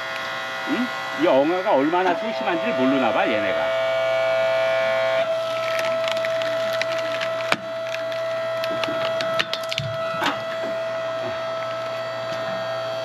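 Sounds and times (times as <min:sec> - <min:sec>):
log splitter whining: 0:00.0 - 0:13.0
wood creaking and cracking: 0:05.3 - 0:12.5.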